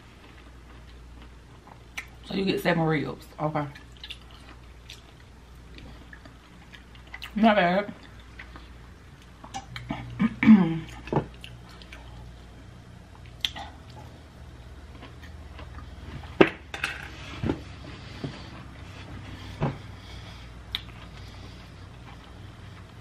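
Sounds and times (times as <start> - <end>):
chewing: 3.7 - 7.4, 10.9 - 12.3, 13.1 - 16.3, 18.0 - 23.0.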